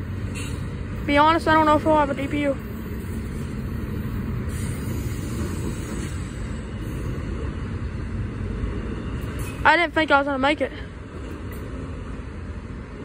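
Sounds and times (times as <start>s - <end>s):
freight train wheels rumbling on rail: 0.0s - 13.0s.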